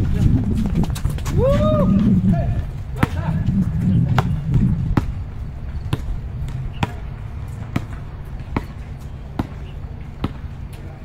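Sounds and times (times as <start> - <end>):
steady low rumble: 0.0 - 11.0
basketball bouncing on court: 3.0 - 10.8.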